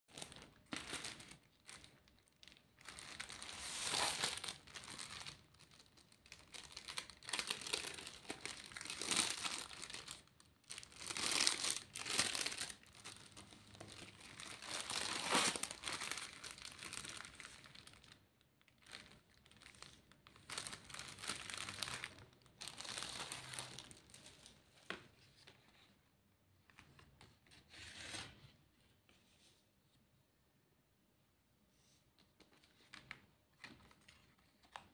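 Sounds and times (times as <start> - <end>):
plastic tearing: 0.1 - 18.2
plastic bag crinkling: 0.1 - 24.5.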